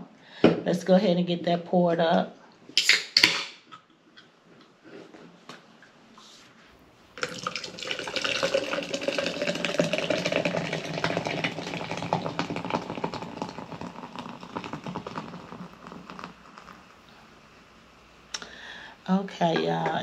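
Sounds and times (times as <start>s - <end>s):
fizzing soda pour: 7.1s - 17.5s.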